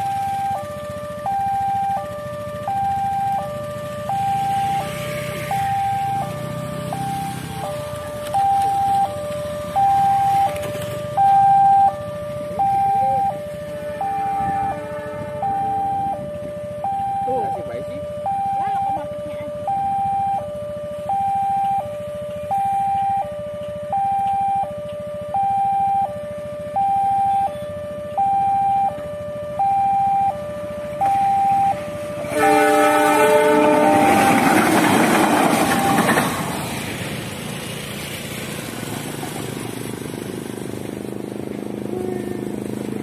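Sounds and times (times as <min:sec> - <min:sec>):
level crossing two-tone siren: 0:00.0 - 0:36.8
locomotive engine rumble: 0:00.0 - 0:43.0
locomotive horn chord: 0:13.6 - 0:15.7, 0:32.2 - 0:35.3, 0:41.8 - 0:42.6.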